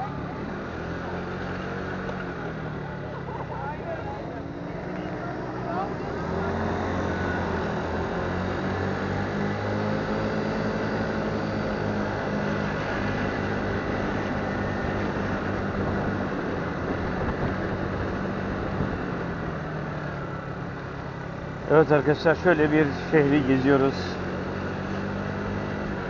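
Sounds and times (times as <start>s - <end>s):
motorbike engine humming: 0.0s - 26.0s
street traffic: 0.0s - 26.0s.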